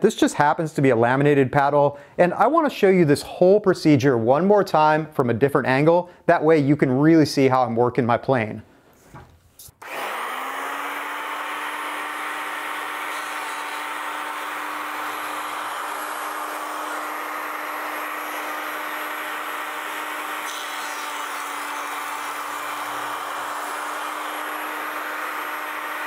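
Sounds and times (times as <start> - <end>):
power planer shaving wood: 9.8 - 26.0.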